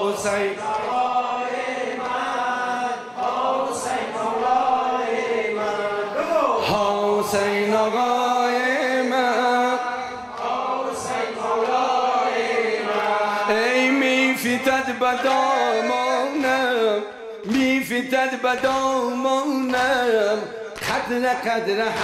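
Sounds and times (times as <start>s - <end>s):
man chanting a lament: 5.9s - 10.3s, 13.2s - 22.0s.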